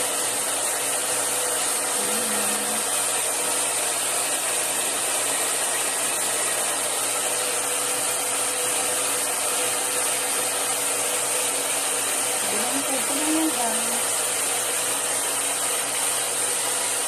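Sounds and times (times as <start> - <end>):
hair dryer running: 0.0 - 17.0.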